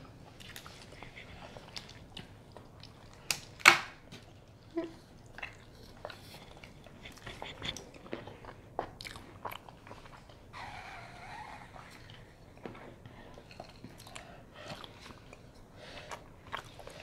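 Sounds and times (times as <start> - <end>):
person chewing bread: 0.1 - 10.6, 11.5 - 17.0.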